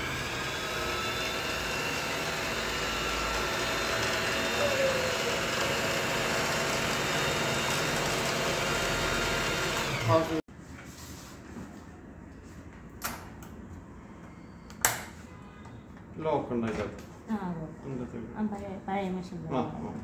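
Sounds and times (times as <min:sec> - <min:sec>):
sewing machine motor running: 0:00.0 - 0:10.4.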